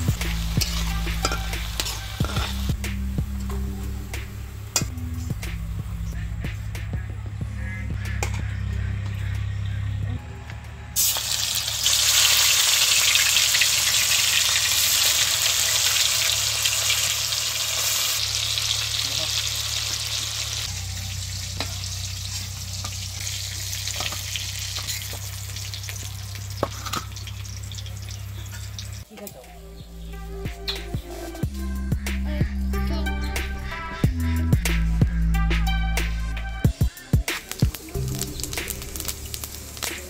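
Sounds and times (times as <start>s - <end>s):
chicken sizzling in hot oil: 0.0s - 3.2s, 11.0s - 29.1s, 36.8s - 40.0s.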